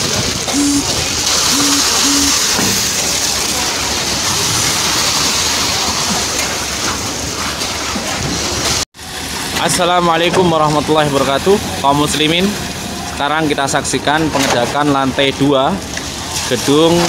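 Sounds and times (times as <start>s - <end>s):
pump running: 0.0s - 8.2s
brief low tones: 0.5s - 2.4s
wet concrete splashing from hose: 2.4s - 13.2s, 15.2s - 17.0s.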